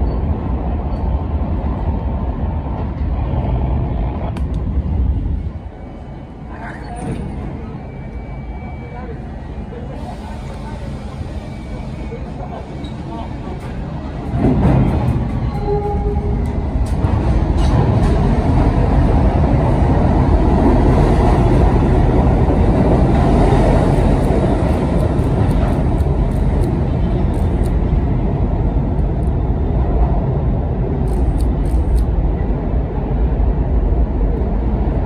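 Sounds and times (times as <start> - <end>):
subway train rumbling past: 0.0 - 35.0.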